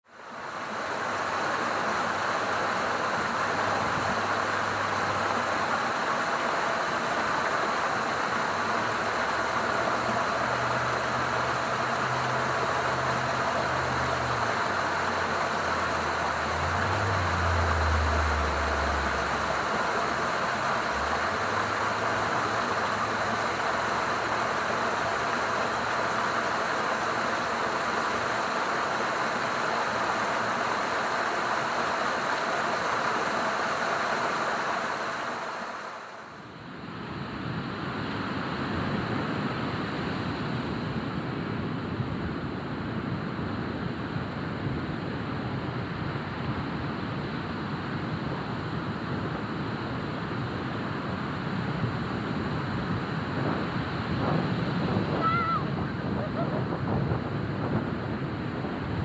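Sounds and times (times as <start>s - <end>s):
water rushing along rocks: 0.0s - 40.6s
low hum changing pitch: 9.2s - 23.9s.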